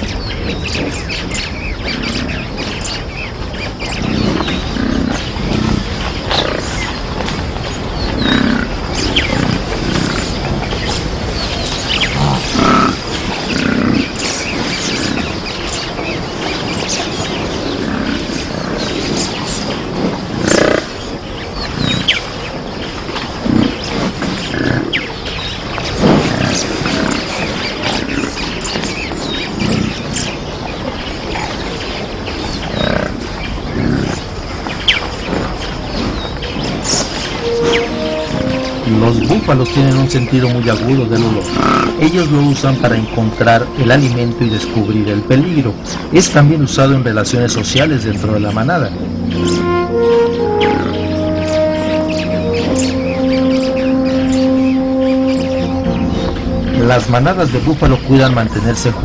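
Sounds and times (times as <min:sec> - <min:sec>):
bird chirps: 0:00.0 - 0:59.0
outdoor background noise: 0:00.0 - 0:59.0
steady ambient hiss: 0:00.0 - 0:59.0
buffalo grunting and lowing: 0:03.8 - 0:57.9.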